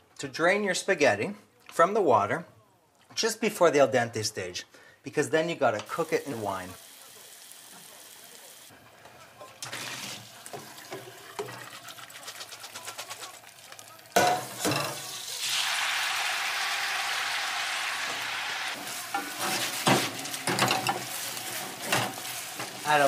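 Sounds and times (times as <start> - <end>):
pasta sizzling in hot oil: 5.9 - 9.0, 9.6 - 23.0
utensils knocking on pan: 14.2 - 15.0, 19.1 - 23.0.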